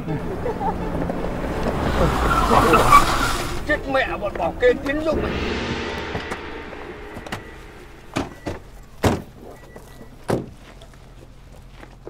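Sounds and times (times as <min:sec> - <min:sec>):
vehicle running noise: 0:00.0 - 0:05.8.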